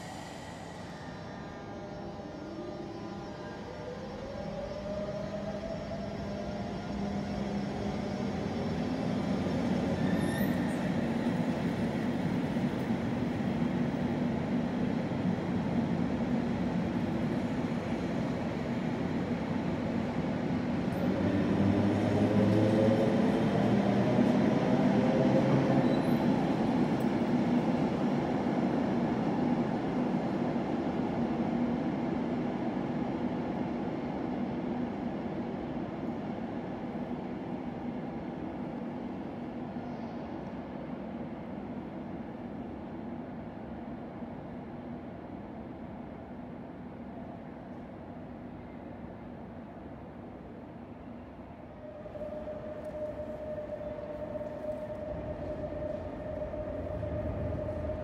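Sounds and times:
train wheels rumbling on rails: 0:03.3 - 0:39.4.

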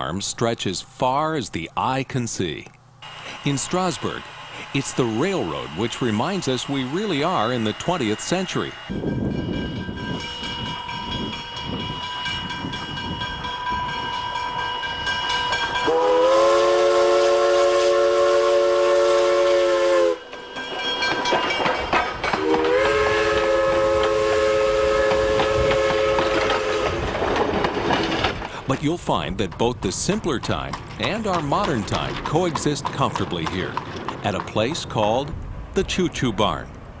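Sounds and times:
steam hiss: 0:03.0 - 0:11.8
chime steam whistle: 0:03.0 - 0:21.7, 0:22.3 - 0:27.0
steam locomotive chuffing: 0:03.0 - 0:36.9.

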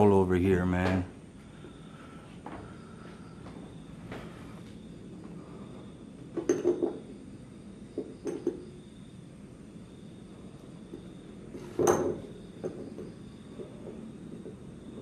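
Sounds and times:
clinking and knocking: 0:06.4 - 0:07.0, 0:11.7 - 0:13.1.

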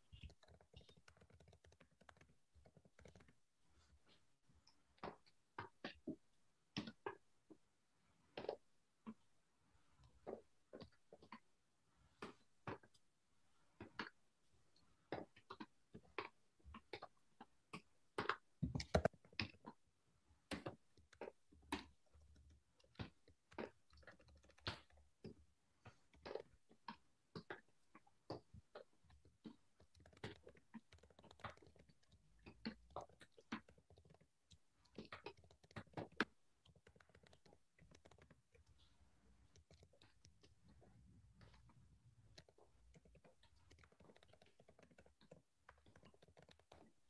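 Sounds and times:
faint keyboard typing: 0:00.0 - 0:06.1, 0:15.1 - 0:19.8, 0:20.5 - 0:47.0.

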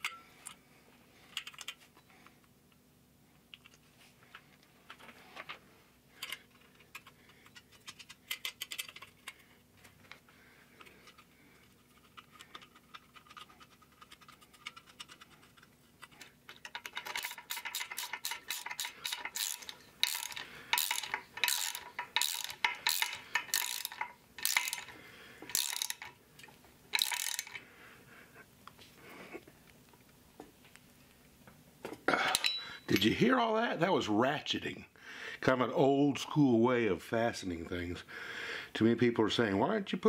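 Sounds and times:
ratchet wrench clicking: 0:16.7 - 0:24.9, 0:25.5 - 0:26.1, 0:26.9 - 0:27.6.

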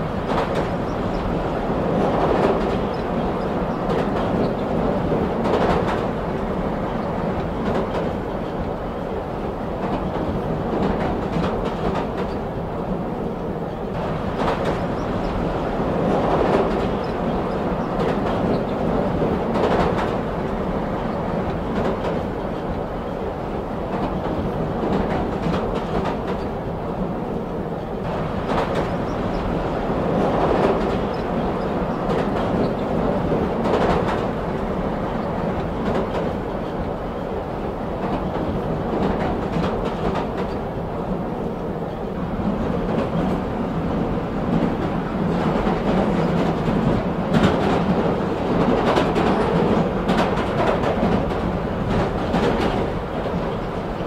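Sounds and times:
train wheels rumbling on track: 0:00.0 - 0:54.0
wheels clacking over rail joints: 0:13.7 - 0:26.8, 0:27.4 - 0:54.0.

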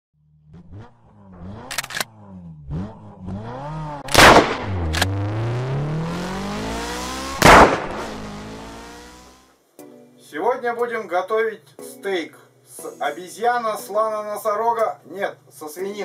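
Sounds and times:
engine revving: 0:00.2 - 0:09.5
sharp clicks: 0:01.6 - 0:02.1, 0:04.1 - 0:05.2
loud gunshots: 0:04.1 - 0:05.0, 0:07.4 - 0:08.2.

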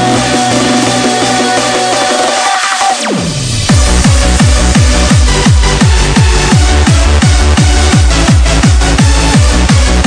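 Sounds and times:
bassline: 0:00.0 - 0:10.0
synth chords: 0:00.0 - 0:10.0
fast kick drum: 0:03.7 - 0:10.0.

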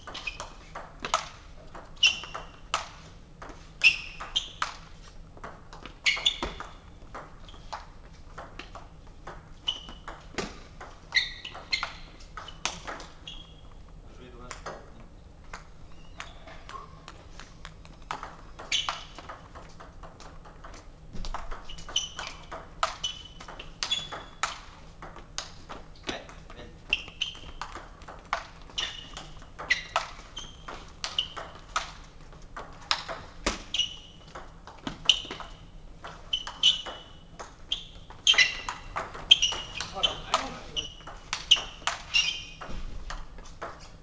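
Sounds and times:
table tennis ball clicking: 0:15.5 - 0:26.4, 0:27.0 - 0:43.8.

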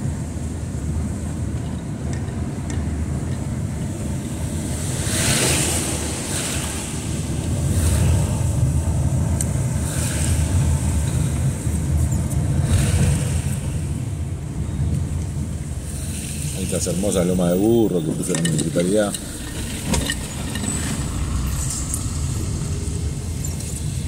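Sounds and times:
engine and road rumble: 0:00.0 - 0:24.0
tyres swishing through water: 0:04.6 - 0:14.6.

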